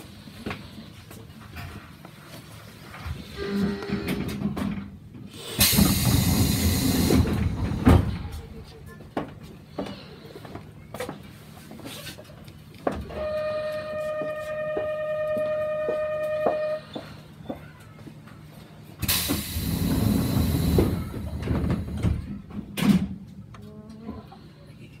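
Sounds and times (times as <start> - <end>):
train doors hissing shut: 5.3 - 8.4, 19.0 - 22.3.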